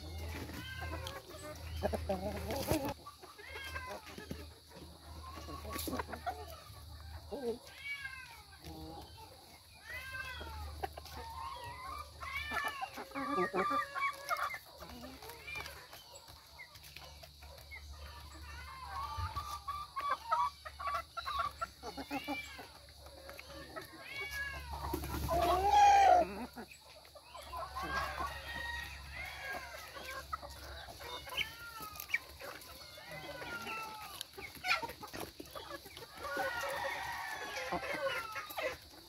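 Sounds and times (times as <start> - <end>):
chickens clucking: 0.0 - 39.0.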